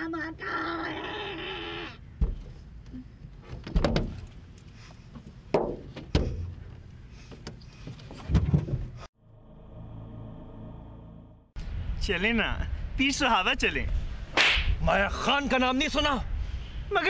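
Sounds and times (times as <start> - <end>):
low musical drone: 9.2 - 11.6.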